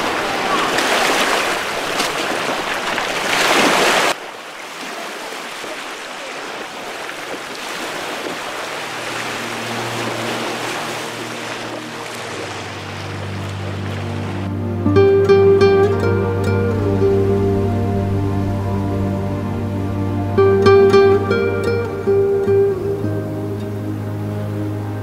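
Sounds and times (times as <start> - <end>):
small waves washing: 0.0 - 25.0
soft music with held notes: 8.8 - 25.0.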